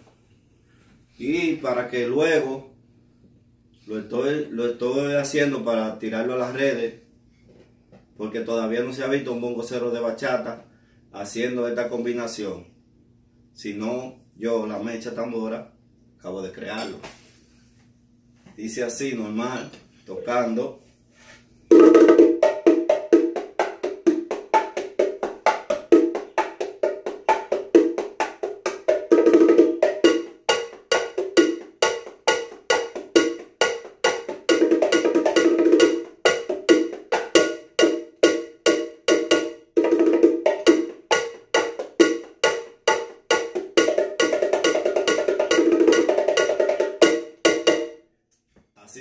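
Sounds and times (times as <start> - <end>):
bongos played by hand: 21.7 - 48.0
cowbell struck by foot pedal: 29.1 - 48.0.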